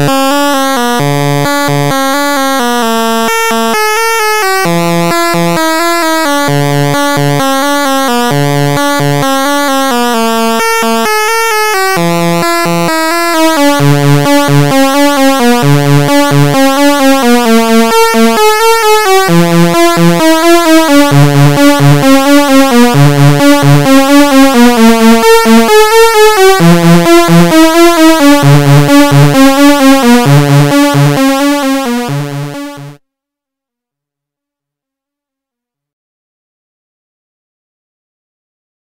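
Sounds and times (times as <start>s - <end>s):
synthesizer sequenced pattern: 0.0s - 33.0s
steady synth pulsing: 6.2s - 33.0s.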